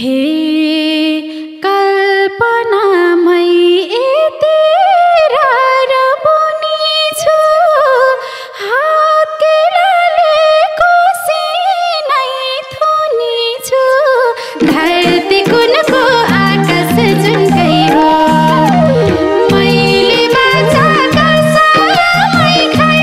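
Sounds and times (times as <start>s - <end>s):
folk melody with sliding pitches: 14.6s - 23.0s.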